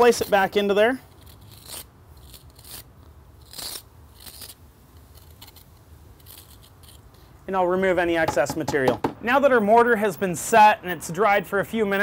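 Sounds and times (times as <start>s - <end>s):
trowel scraping mortar: 0.0s - 7.3s.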